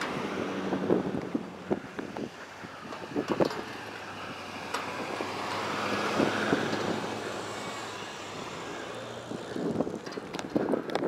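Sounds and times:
truck driving past on snow: 0:03.6 - 0:10.0.

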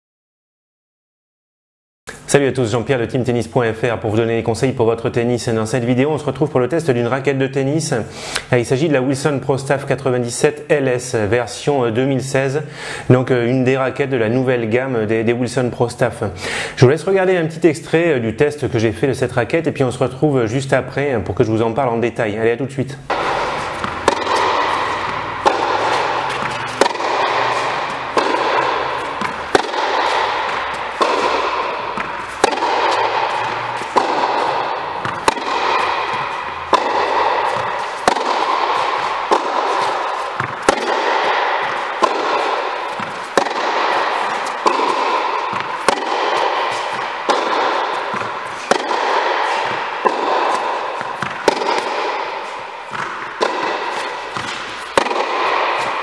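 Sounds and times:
tennis ball hit by racquets: 0:23.1 - 0:56.0.

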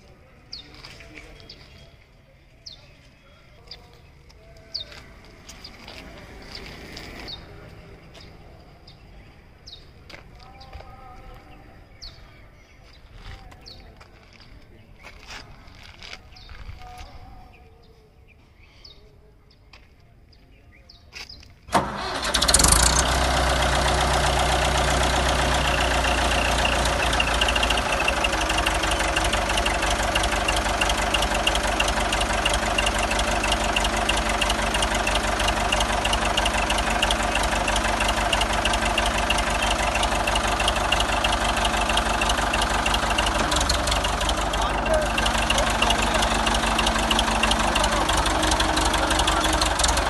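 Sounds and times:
tractor diesel engine idling: 0:21.7 - 0:50.0.

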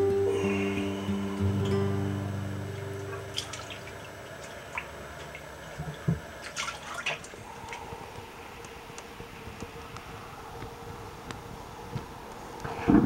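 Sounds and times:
faint steady hum: 0:00.0 - 0:13.0
water dripping and splashing: 0:02.9 - 0:12.7.

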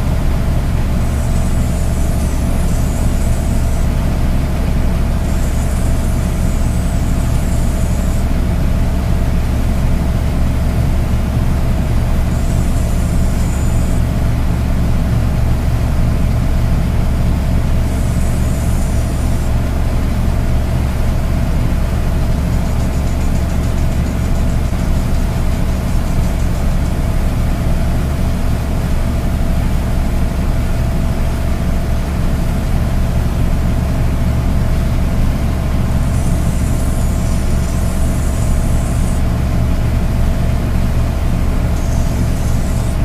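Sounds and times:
portable generator humming: 0:00.0 - 0:43.0
short high hissing: 0:35.8 - 0:39.4.

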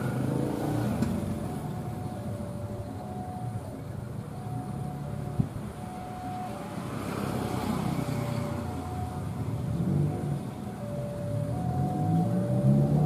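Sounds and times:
low engine rumble: 0:00.0 - 0:13.0
two-note level crossing signal: 0:10.2 - 0:13.0.

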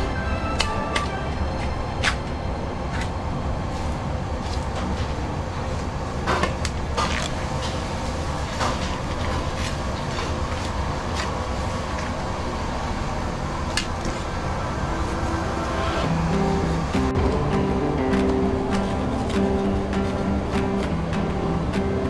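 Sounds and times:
low rumble: 0:14.2 - 0:21.8.

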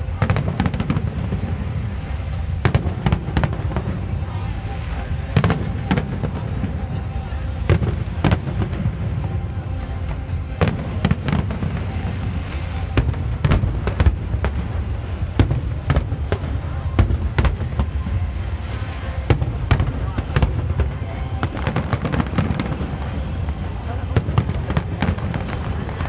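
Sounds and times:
fireworks bangs: 0:00.0 - 0:26.0.

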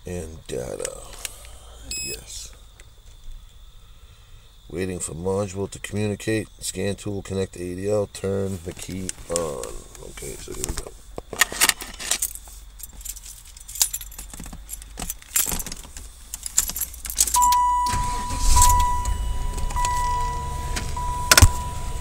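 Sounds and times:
low car hum: 0:00.0 - 0:22.0
keys jangling in ignition: 0:10.5 - 0:21.8
high electronic tone: 0:17.4 - 0:22.0.

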